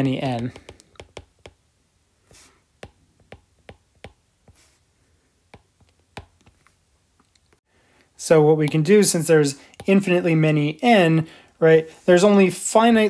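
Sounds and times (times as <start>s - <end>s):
stylus tapping tablet screen: 0.0s - 1.7s, 2.3s - 4.8s, 5.4s - 6.8s, 9.7s - 10.2s
soft hiss: 1.8s - 3.7s.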